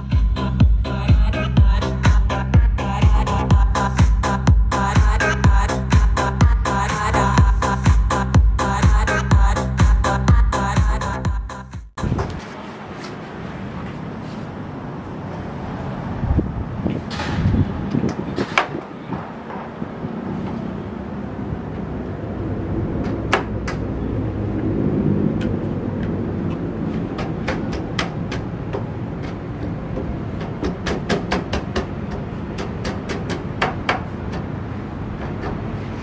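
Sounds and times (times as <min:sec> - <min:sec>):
street background noise: 0:00.0 - 0:36.0
speaker parts clicking and knocking: 0:25.4 - 0:35.7.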